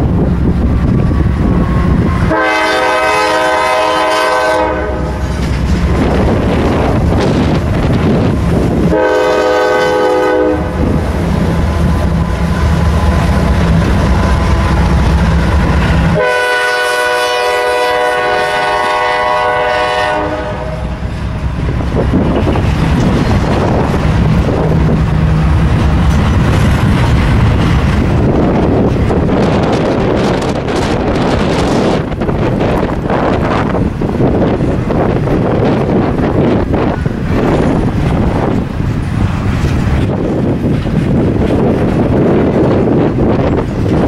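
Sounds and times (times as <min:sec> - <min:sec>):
locomotive engines rumbling: 0:00.0 - 0:44.0
locomotive horn blasts: 0:02.2 - 0:05.3, 0:08.9 - 0:10.8, 0:16.1 - 0:21.1.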